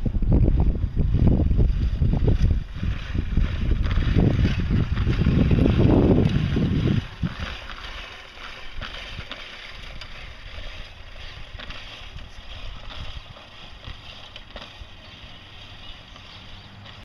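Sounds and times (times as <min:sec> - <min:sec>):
wind on microphone: 0:00.0 - 0:17.0.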